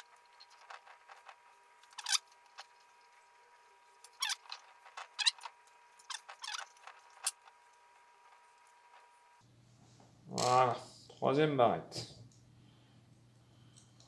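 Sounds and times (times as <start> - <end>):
small metal clicks and scrapes: 0.0 - 3.3, 3.9 - 9.1.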